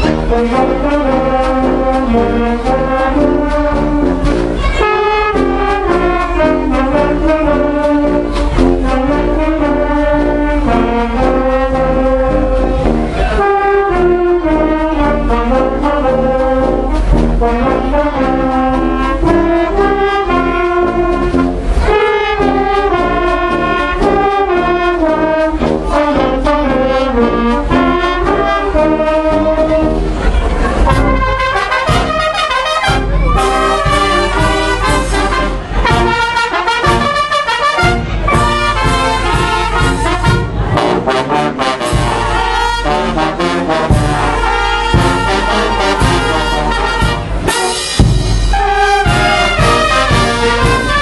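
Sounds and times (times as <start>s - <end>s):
brass band playing a march: 0.0s - 51.0s
bass drum beat: 37.8s - 41.2s, 43.4s - 51.0s.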